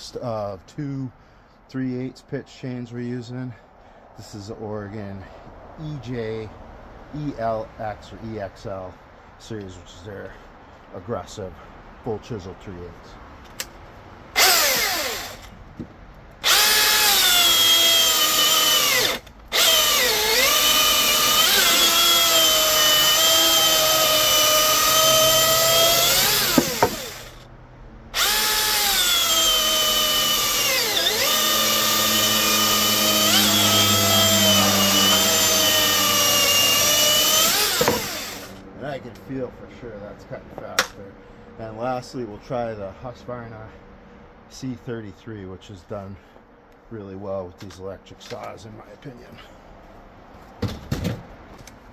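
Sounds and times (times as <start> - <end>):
electric chainsaw cutting wood: 14.4 - 15.5, 16.4 - 27.4, 28.1 - 38.6.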